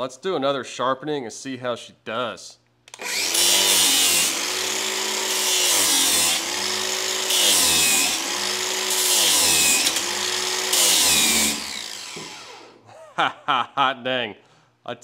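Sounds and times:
angle grinder motor hum: 2.9 - 12.8.

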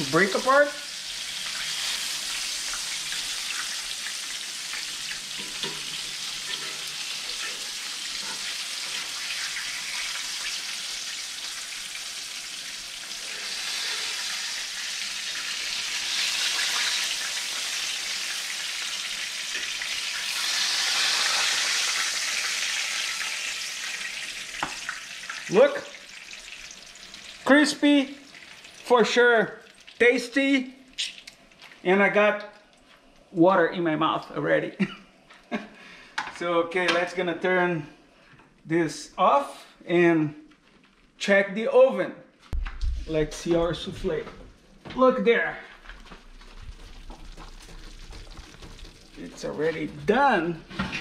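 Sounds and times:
fish frying in oil: 0.0 - 29.0, 46.3 - 50.0.

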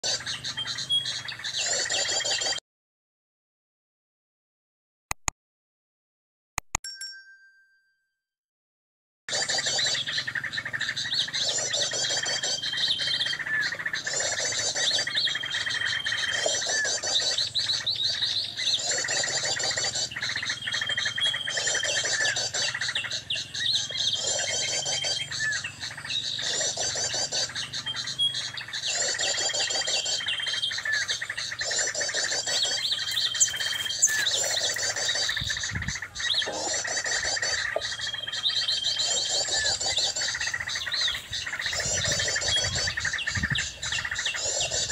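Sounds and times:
bird chattering and whistling: 0.0 - 2.6, 9.3 - 44.9.

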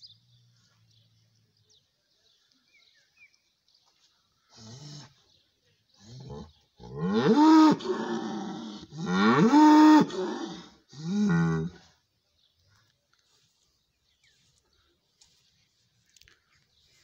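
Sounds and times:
bull bellowing: 6.2 - 11.8.

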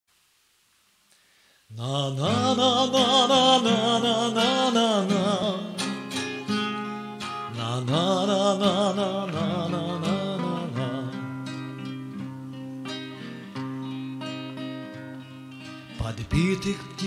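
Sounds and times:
nylon-string guitar: 1.7 - 17.0
steel-string acoustic guitar: 1.8 - 17.0.

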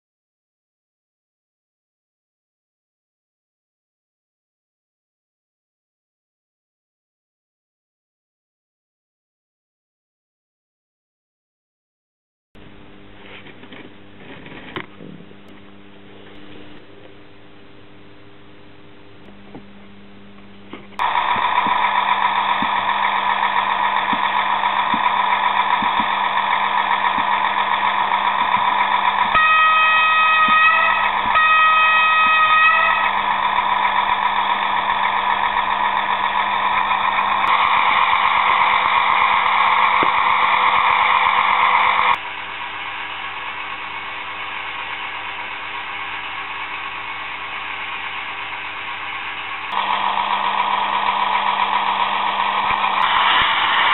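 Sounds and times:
model engine sound from speaker: 19.1 - 53.9
horn blasts: 29.3 - 33.3.

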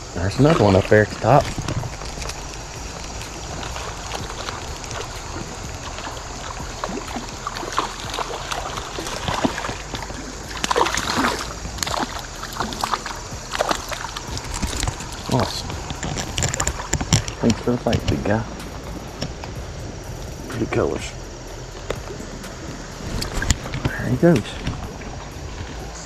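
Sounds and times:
creek flowing: 0.0 - 26.0
fish thrashing at surface: 0.2 - 20.8
small clicks and splashes: 0.3 - 20.7.

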